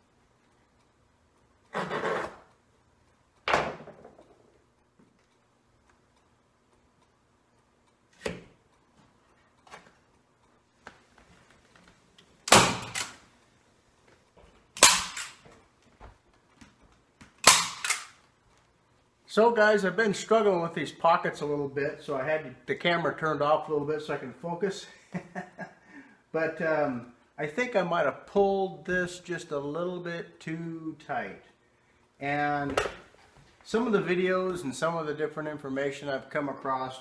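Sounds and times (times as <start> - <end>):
staple gun snaps: 17.4 - 18.2.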